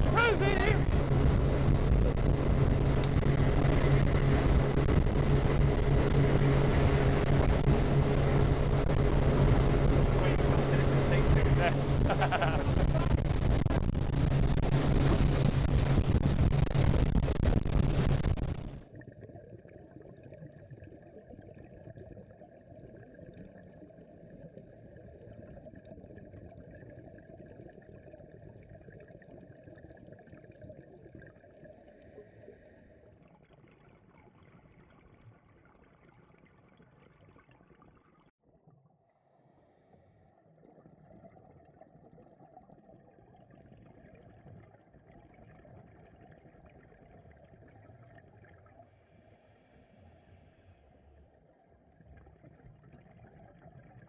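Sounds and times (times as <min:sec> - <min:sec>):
motorboat engine running: 0:00.0 - 0:18.8
muffled watery hiss and gurgling: 0:00.0 - 0:38.3, 0:39.2 - 0:54.0
wind noise on microphone: 0:11.2 - 0:18.8.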